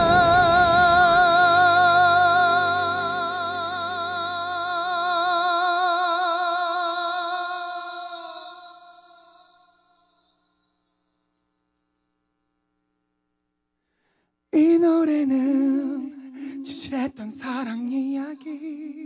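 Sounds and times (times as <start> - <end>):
pop backing track: 0.0 - 6.4
man singing long high note: 0.0 - 9.8.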